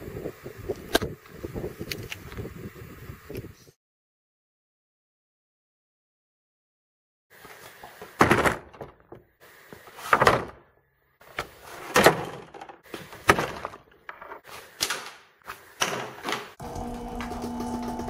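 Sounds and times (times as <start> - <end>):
garage door opener motor hum: 16.2 - 18.0.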